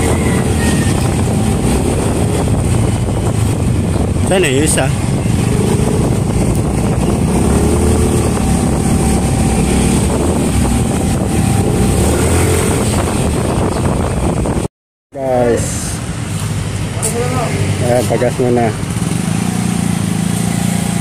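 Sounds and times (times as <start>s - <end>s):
motor scooter engine running: 0.0s - 14.4s
wind on microphone: 0.0s - 14.7s.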